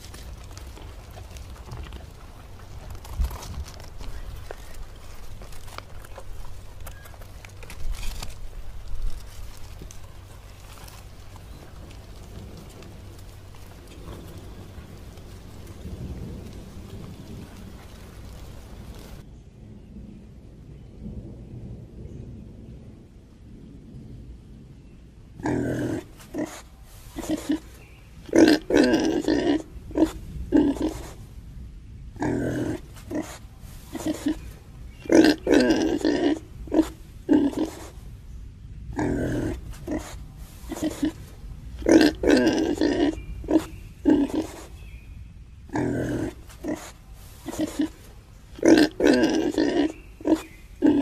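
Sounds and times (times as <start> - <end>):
low even rumble: 0.0 - 26.2
pig grunting: 25.4 - 26.6, 27.2 - 27.7, 28.3 - 31.2, 32.2 - 38.0, 38.9 - 44.8, 45.7 - 48.0, 48.6 - 51.0.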